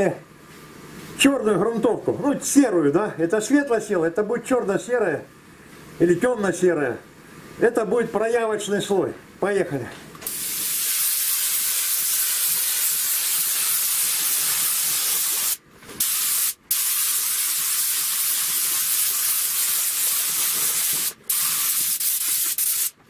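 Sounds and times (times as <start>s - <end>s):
spray gun hissing: 10.2s - 23.0s.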